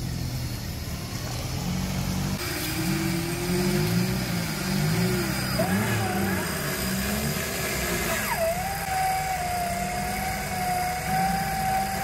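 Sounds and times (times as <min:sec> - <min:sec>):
vehicle engine running: 0:00.0 - 0:12.0
winch whining: 0:04.7 - 0:12.0.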